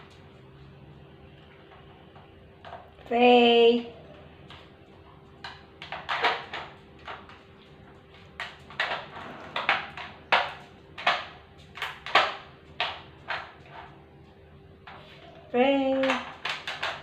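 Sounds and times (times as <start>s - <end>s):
plastic puzzle feeder clattering: 8.1s - 14.0s, 16.0s - 17.0s.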